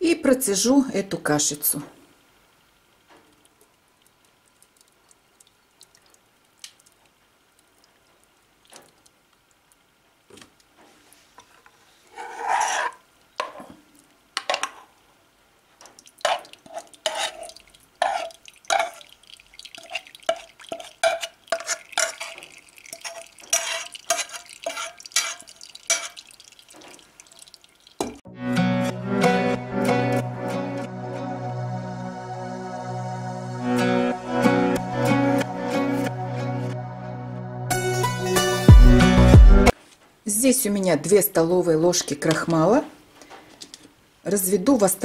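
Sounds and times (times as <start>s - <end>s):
metal spoon scraping saucepan: 12.0s - 13.7s, 16.2s - 19.1s, 19.8s - 26.3s
thick mash pouring with splash: 15.9s - 28.2s.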